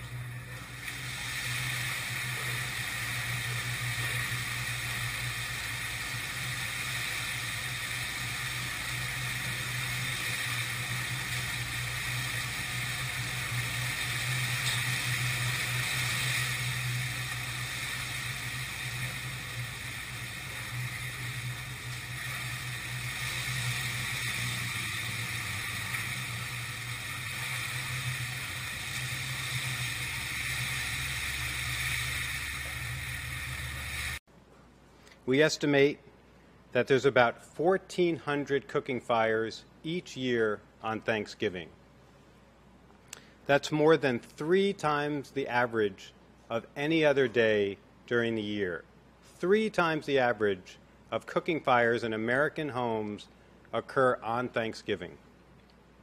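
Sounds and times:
fire rushing: 0.0s - 34.2s
low hum: 0.0s - 34.2s.

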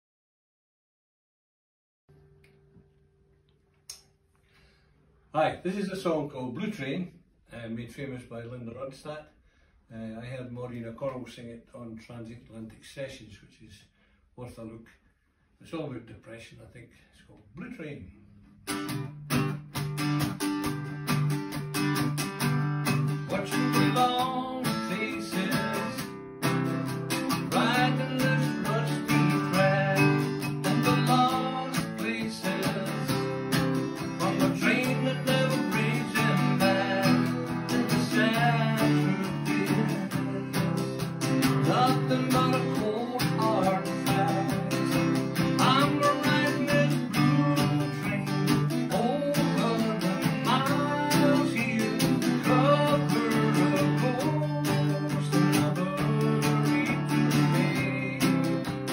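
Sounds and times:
acoustic string instrument strumming: 18.6s - 58.9s
man singing folk song: 23.0s - 58.9s.

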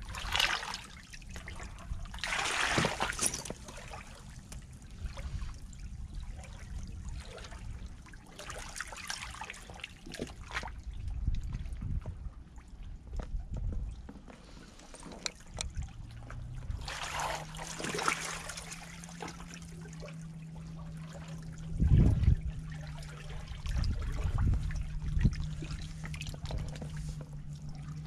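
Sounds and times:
seawater washing over coral rubble: 0.0s - 5.4s, 16.7s - 28.0s
steady low rumble: 0.0s - 28.0s.

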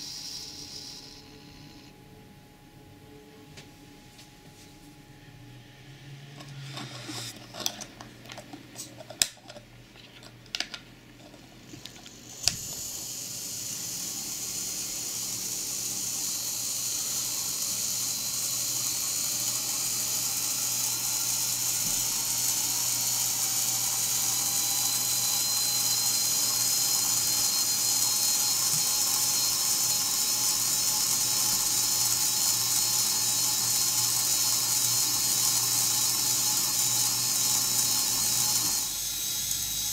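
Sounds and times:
high-pitched motor whir: 0.0s - 1.9s, 12.1s - 39.9s.

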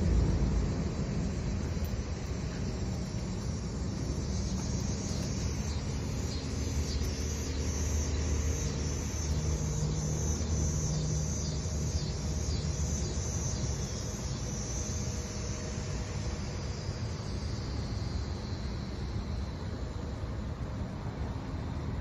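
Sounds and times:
low engine rumble: 0.0s - 14.2s
insects buzzing: 0.0s - 22.0s.

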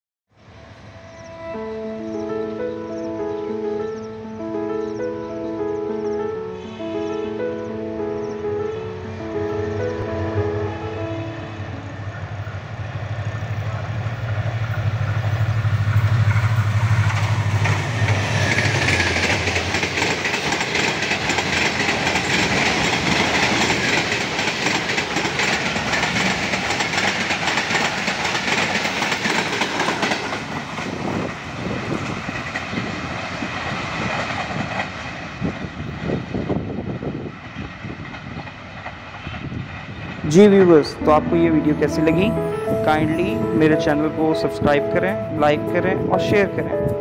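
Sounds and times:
locomotive drone: 0.4s - 47.0s
train coaches rushing past: 6.5s - 47.0s
wheels clattering over rail joints: 16.0s - 35.5s.

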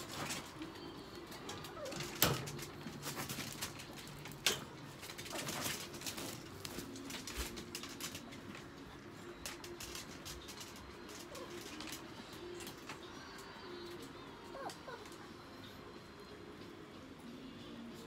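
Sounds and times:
wire crate rattling: 0.0s - 8.7s.

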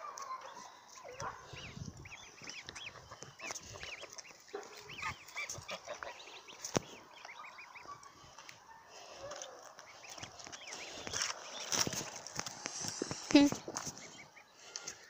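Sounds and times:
adult geese calling: 0.0s - 8.7s
goslings peeping: 0.0s - 15.0s.

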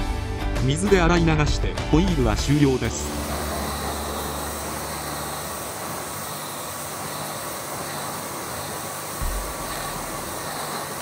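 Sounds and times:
pressure washer motor running: 2.5s - 11.0s
pressure washer spray hiss: 3.0s - 11.0s.

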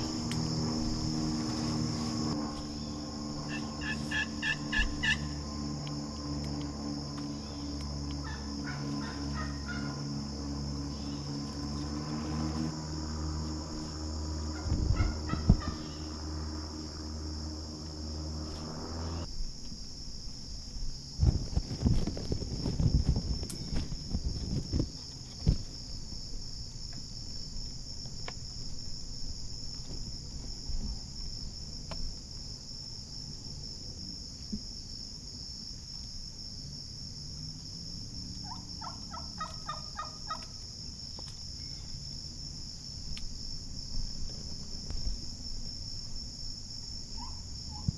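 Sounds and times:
low hum: 0.0s - 32.4s
high-pitched insect chorus: 0.0s - 47.9s.

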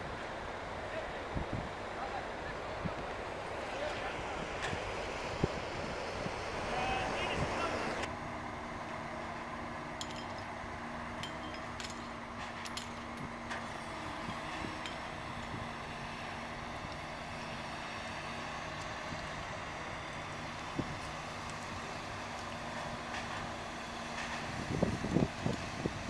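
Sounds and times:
industrial machinery hum: 0.0s - 26.0s
faint metallic clinks: 10.0s - 10.5s, 11.2s - 13.2s.

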